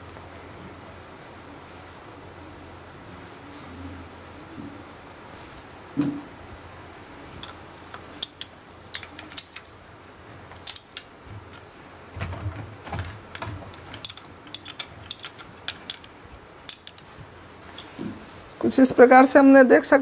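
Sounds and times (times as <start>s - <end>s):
spanner clicking on steel nuts: 7.4s - 9.7s, 10.5s - 11.7s, 13.0s - 17.1s.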